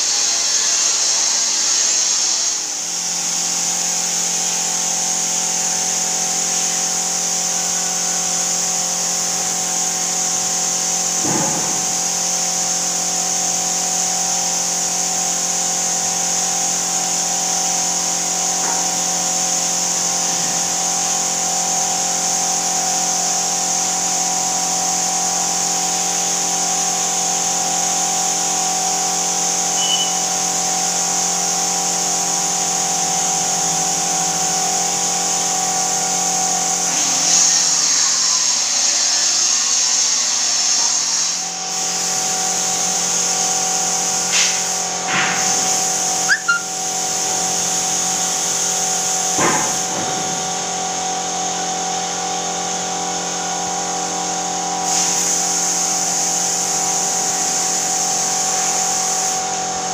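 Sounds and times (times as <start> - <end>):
air compressor running: 0.0 - 59.9
spray gun hissing: 41.0 - 50.7, 54.9 - 59.5.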